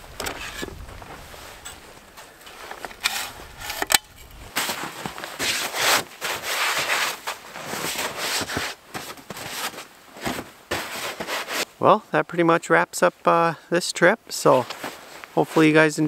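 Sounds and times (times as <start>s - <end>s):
brushing snow off a vehicle: 4.5s - 11.6s.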